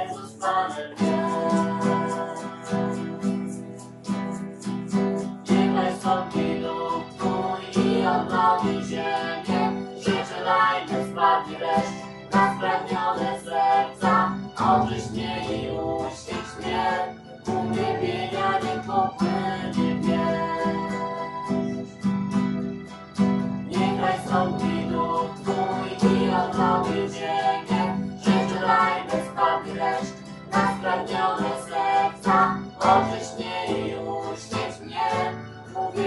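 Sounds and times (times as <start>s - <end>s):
person singing: 0.0s - 22.2s, 23.6s - 36.0s
strummed acoustic guitar: 0.0s - 36.0s.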